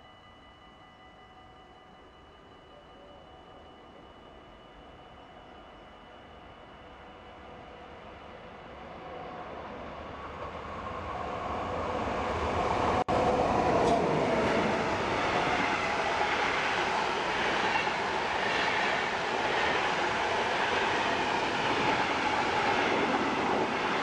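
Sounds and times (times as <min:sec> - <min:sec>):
electric locomotive rumble: 0:00.0 - 0:24.0
wheels rushing on rail: 0:08.9 - 0:24.0.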